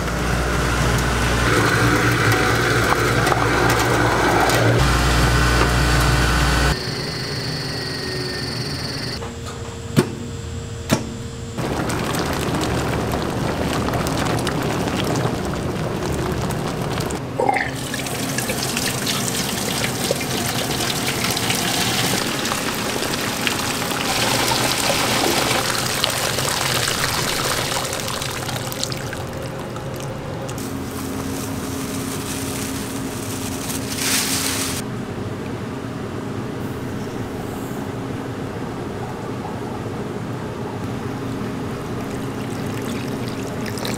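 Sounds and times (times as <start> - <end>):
milk pouring through strainer: 11.6 - 34.0, 41.9 - 43.9.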